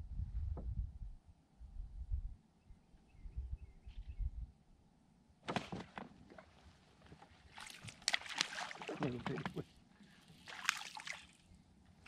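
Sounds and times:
water splashing: 7.5 - 9.6, 10.3 - 11.5.

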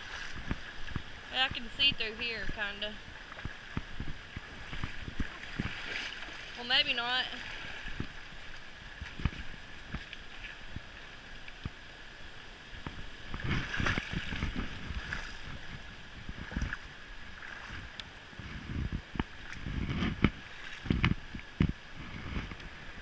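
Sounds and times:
footsteps splashing through water: 4.4 - 6.6, 13.4 - 15.8.

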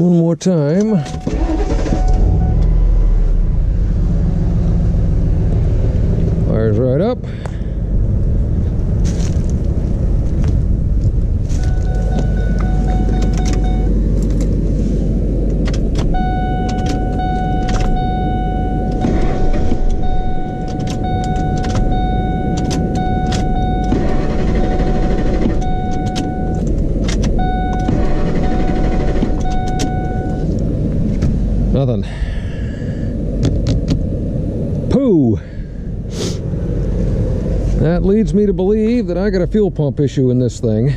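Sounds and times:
electronic warning tone: 1.0 - 3.2, 11.6 - 14.0, 16.1 - 26.6, 27.3 - 30.5
truck engine idling: 1.2 - 40.9.

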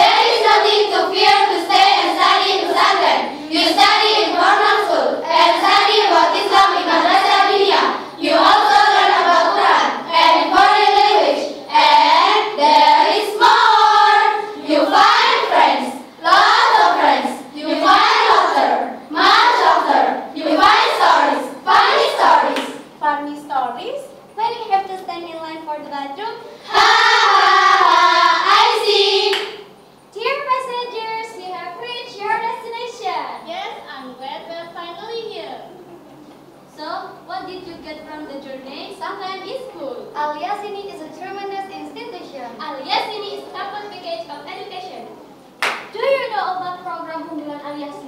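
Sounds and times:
girls singing in unison: 0.0 - 22.8, 26.6 - 29.7.

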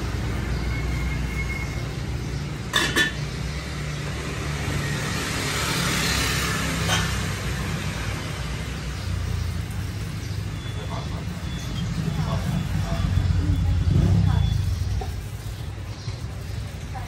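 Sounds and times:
low hum of street traffic: 0.0 - 17.0
dishes clinking: 2.7 - 3.3, 6.8 - 7.2.

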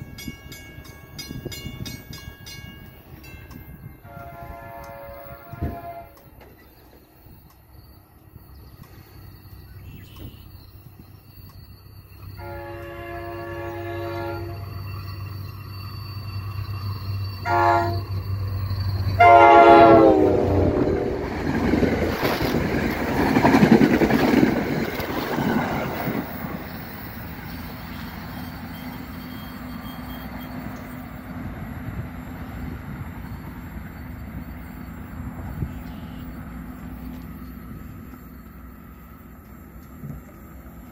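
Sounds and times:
diesel locomotive drone: 0.0 - 40.9
train wheels rumbling past: 0.0 - 40.9
train horn blasts: 4.0 - 6.4, 12.4 - 14.8, 17.4 - 18.1, 19.2 - 21.3, 35.4 - 36.4.

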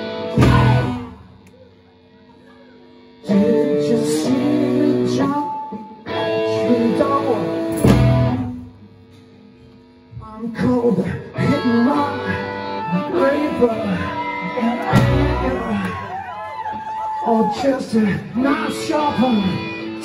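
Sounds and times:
electric guitar: 0.0 - 1.9, 3.1 - 20.0
drums: 0.0 - 9.4, 14.6 - 17.6.

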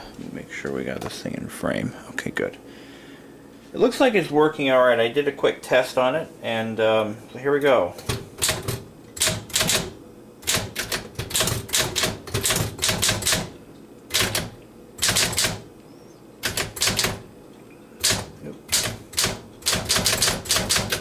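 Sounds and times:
manual typewriter clacking: 8.1 - 13.5, 14.1 - 15.6, 16.4 - 17.2, 18.0 - 21.0.

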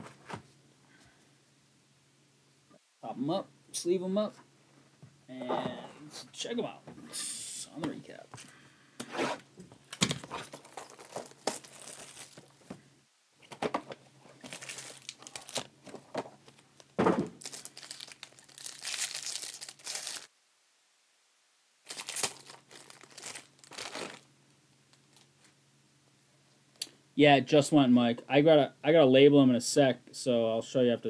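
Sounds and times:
plastic sleeves crinkling: 9.9 - 12.8, 14.3 - 20.3, 21.8 - 24.3.

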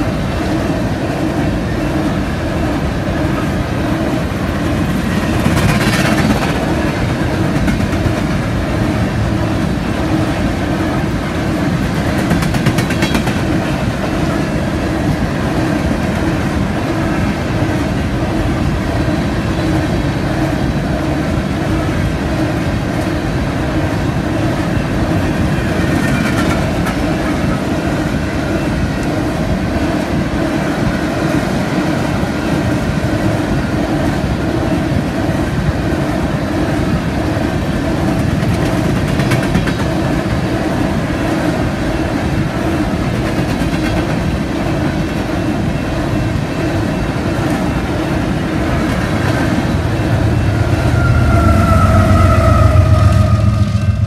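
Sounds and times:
train cars rumbling past: 0.0 - 54.0
wheel clatter on rails: 3.2 - 14.1, 25.2 - 27.6, 37.9 - 40.9
whine falling in pitch: 49.7 - 54.0.

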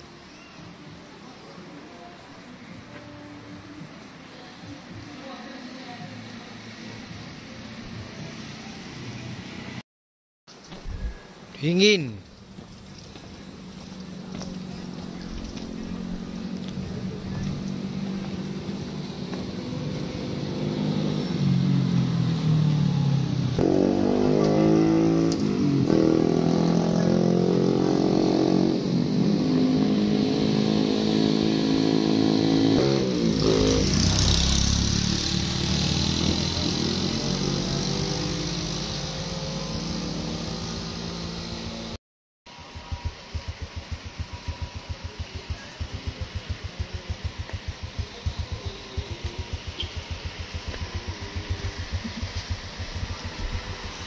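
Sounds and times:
vehicle engines passing: 4.0 - 9.8, 11.6 - 54.0
motorcycle engine: 12.4 - 54.0
vehicle rushing by: 13.5 - 42.0, 43.4 - 54.0.

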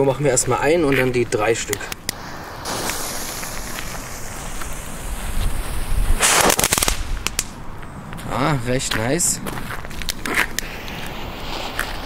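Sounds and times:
firework crackling pops: 1.6 - 7.6, 9.8 - 12.0
firework fuse hissing: 1.7 - 7.6, 10.3 - 12.0.

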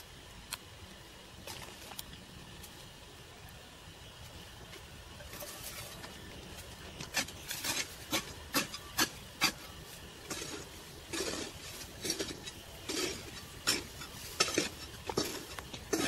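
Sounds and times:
hoe scraping through soil: 5.4 - 16.0.

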